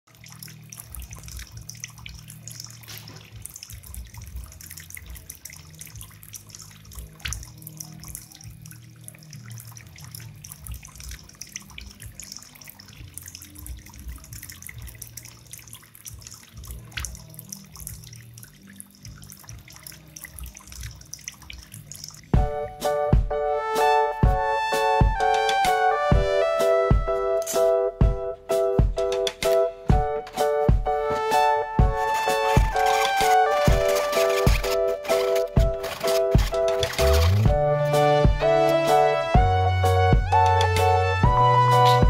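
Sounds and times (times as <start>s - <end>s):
water trickling and splashing: 0.0s - 22.5s, 29.2s - 37.6s.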